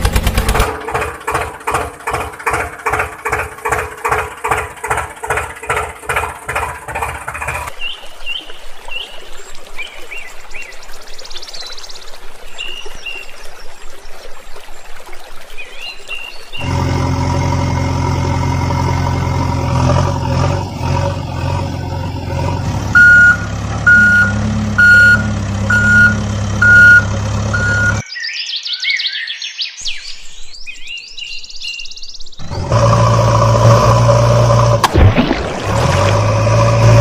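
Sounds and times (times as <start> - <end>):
heavy vehicle engine running: 0.0 - 7.7, 16.6 - 28.0, 32.4 - 37.0
reversing alarm beeping: 22.9 - 28.0.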